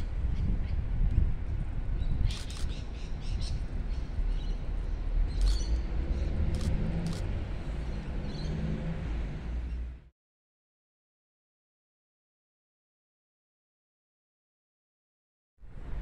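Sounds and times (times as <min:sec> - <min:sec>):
low outdoor rumble: 0:00.0 - 0:10.1, 0:15.6 - 0:16.0
short bird chirps: 0:05.3 - 0:05.8.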